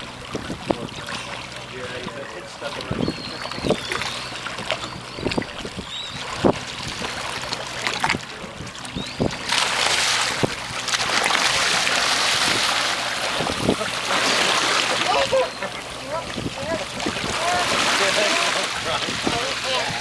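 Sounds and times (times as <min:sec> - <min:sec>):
fins splashing water: 0:00.0 - 0:20.0
water lapping against boat hull: 0:00.0 - 0:20.0
wind on microphone: 0:05.0 - 0:07.2, 0:12.3 - 0:13.9, 0:16.2 - 0:18.0, 0:18.8 - 0:20.0.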